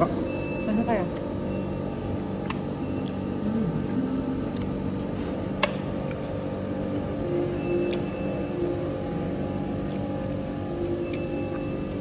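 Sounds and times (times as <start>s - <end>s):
ventilation din: 0.0s - 12.0s.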